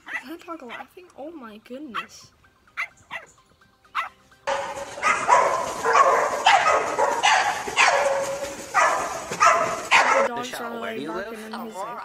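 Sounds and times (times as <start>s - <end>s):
dogs barking: 0.0s - 1.0s, 1.9s - 2.2s, 2.8s - 3.3s, 3.9s - 11.3s
water splashing: 4.5s - 10.3s.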